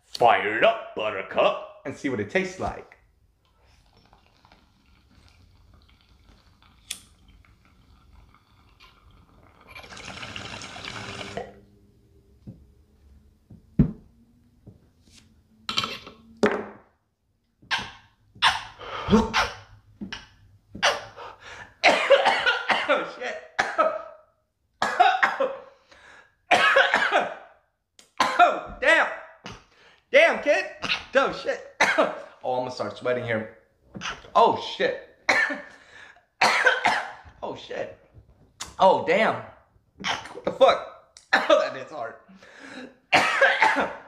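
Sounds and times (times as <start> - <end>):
water bong bubbling: 3.5 - 11.7
man coughing: 19.0 - 19.6, 21.8 - 24.2, 24.8 - 25.7, 26.5 - 27.4, 28.2 - 28.8, 31.8 - 32.3, 35.3 - 35.8, 36.4 - 37.2, 41.3 - 41.8, 42.8 - 44.0.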